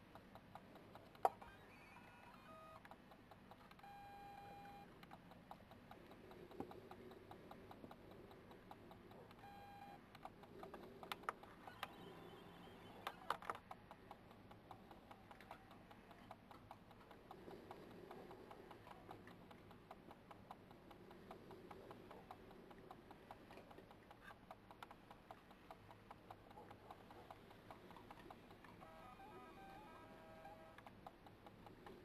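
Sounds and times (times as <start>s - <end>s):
animal chewing food: 13.3s - 28.8s.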